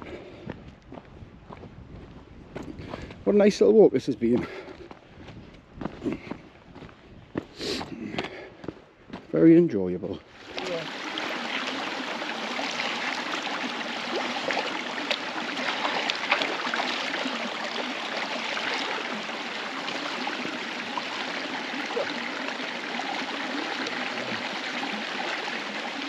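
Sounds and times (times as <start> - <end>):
stream running: 10.1 - 26.0.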